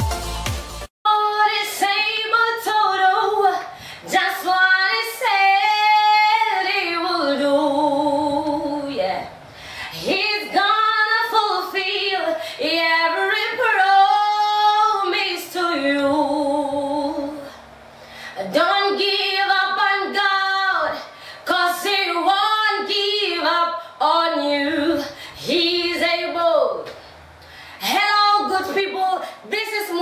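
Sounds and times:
electronic music: 0:00.0 - 0:00.9
woman singing unaccompanied: 0:01.1 - 0:17.6, 0:18.4 - 0:27.0, 0:27.8 - 0:30.0.

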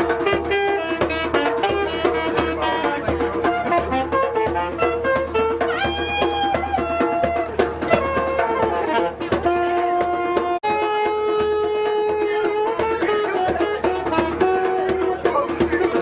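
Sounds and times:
djembe hand drumming: 0:00.0 - 0:16.0
saxophone melody: 0:00.0 - 0:16.0.

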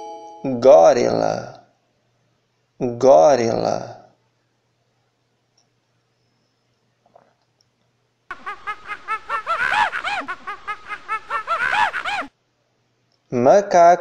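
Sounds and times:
primate chattering calls: 0:08.3 - 0:12.3.

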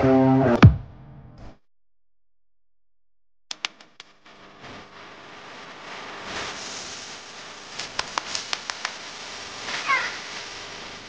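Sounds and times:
steady hiss: 0:04.2 - 0:11.0.

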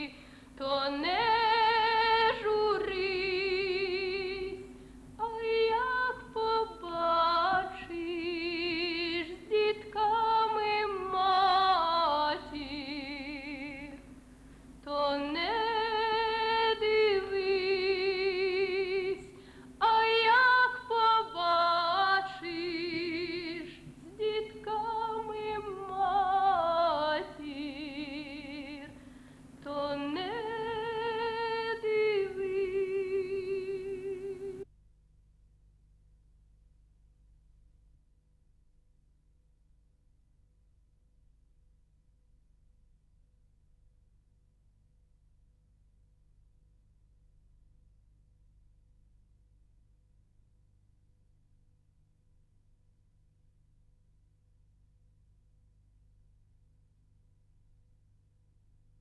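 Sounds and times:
woman singing with vibrato: 0:00.0 - 0:14.0, 0:14.8 - 0:29.0, 0:29.6 - 0:34.6.

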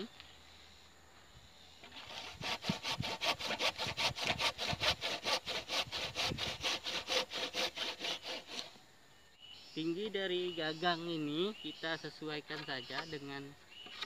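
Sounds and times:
hand saw cutting wood: 0:02.0 - 0:08.8.

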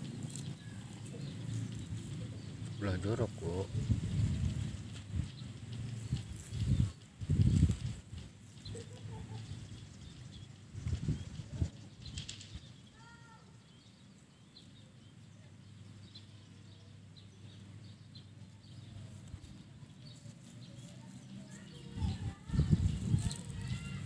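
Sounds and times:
bumps and rustles: 0:03.6 - 0:12.8.

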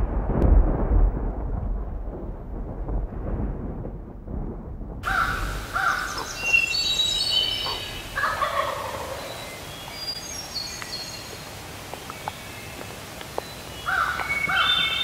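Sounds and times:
songbirds singing: 0:05.1 - 0:15.0
turkey gobbling: 0:07.3 - 0:09.4.

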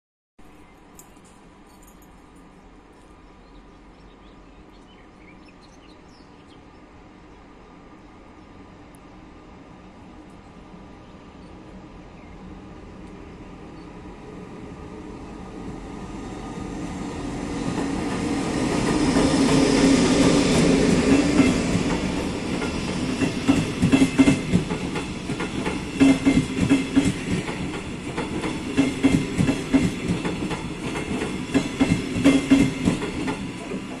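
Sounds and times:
electric locomotive passing: 0:01.7 - 0:34.0
train wheels clattering over rail joints: 0:17.6 - 0:34.0.

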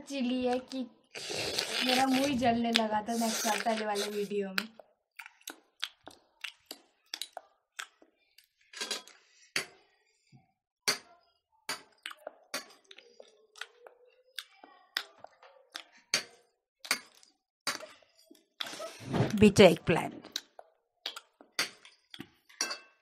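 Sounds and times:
chewing and lip-smacking: 0:00.6 - 0:08.6, 0:11.9 - 0:17.4, 0:20.3 - 0:22.5
spoons clinking on plates: 0:21.6 - 0:23.0.

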